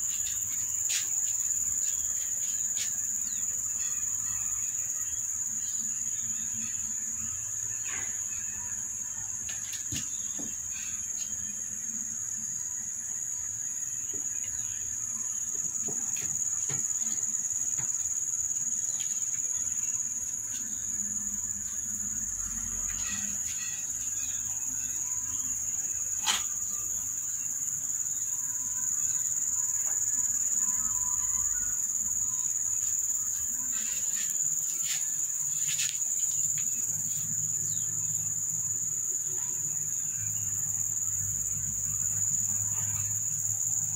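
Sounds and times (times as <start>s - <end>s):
insects trilling: 0.0s - 43.9s.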